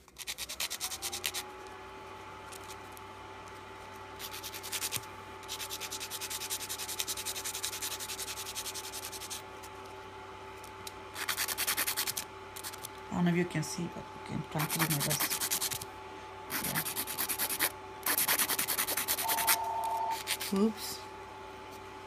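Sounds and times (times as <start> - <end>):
nail file rasping: 0.0 - 1.4, 4.2 - 9.4, 11.2 - 12.9, 14.6 - 15.8, 16.5 - 19.6, 20.2 - 20.6
steady low hum: 0.0 - 22.0.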